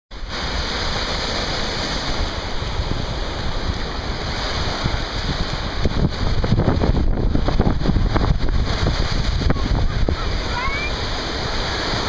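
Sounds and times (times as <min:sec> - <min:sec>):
small waves washing ashore: 0:00.1 - 0:12.0
wind buffeting microphone: 0:00.2 - 0:12.0.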